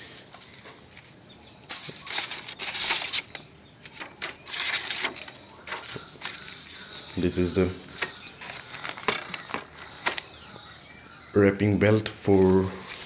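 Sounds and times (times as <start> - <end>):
paper rustling and scraping: 0.0 - 7.3, 7.9 - 10.3, 12.7 - 13.0.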